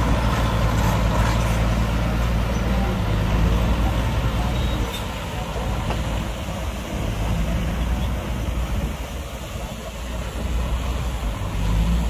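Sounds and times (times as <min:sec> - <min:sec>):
diesel engine humming: 0:00.0 - 0:12.0.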